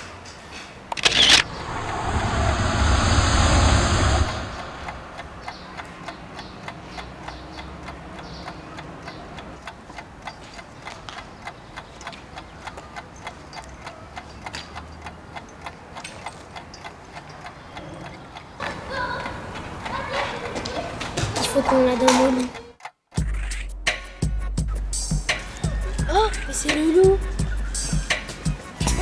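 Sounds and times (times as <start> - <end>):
faint low rumble: 1.3 - 6.1
clock ticking: 5.4 - 20.6.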